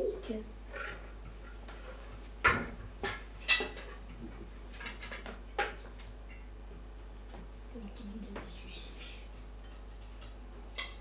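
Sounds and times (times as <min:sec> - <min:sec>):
plates and cutlery clinking: 0:00.7 - 0:06.6, 0:08.9 - 0:11.0.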